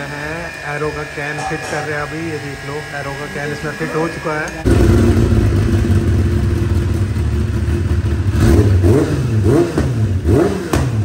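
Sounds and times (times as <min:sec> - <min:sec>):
motorcycle throttle blips: 0:04.4 - 0:11.0
motorcycle engine idling loudly: 0:04.6 - 0:11.0.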